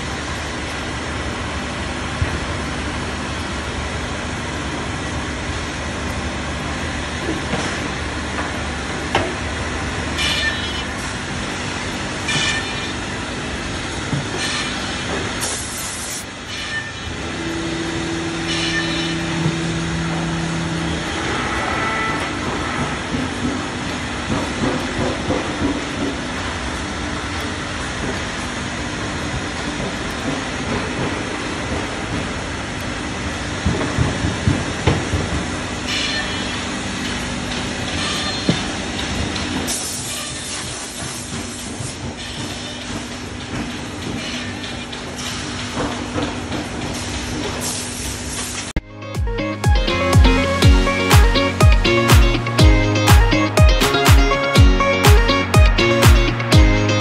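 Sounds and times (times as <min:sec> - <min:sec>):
workshop machinery noise: 0:00.0 - 0:57.0
air hiss: 0:15.4 - 0:16.3.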